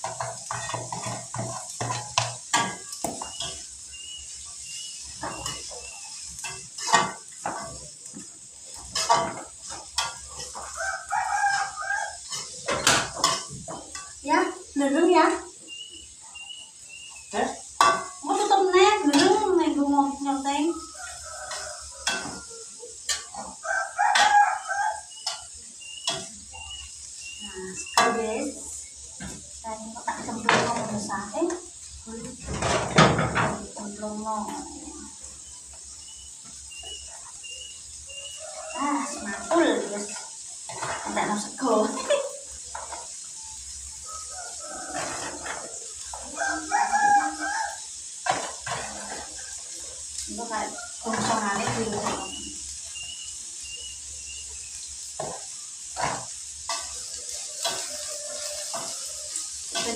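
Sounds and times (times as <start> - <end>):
metal spatula clinking on pan: 0.0 - 14.2, 17.6 - 19.6, 20.8 - 26.7, 39.4 - 43.2, 56.0 - 59.9
chickens clucking: 2.5 - 14.1, 20.6 - 31.4, 32.4 - 59.9
rooster crowing: 10.3 - 13.2, 18.4 - 25.5, 36.9 - 40.2, 43.8 - 48.1, 48.7 - 54.3, 56.7 - 59.9.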